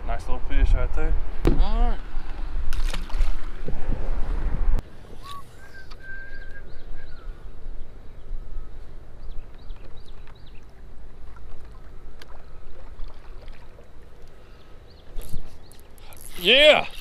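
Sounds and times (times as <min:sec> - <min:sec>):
wind noise: 0:00.0 - 0:05.6
water noise: 0:01.2 - 0:06.7, 0:07.3 - 0:17.0
birds chirping: 0:05.2 - 0:10.9, 0:14.2 - 0:17.0.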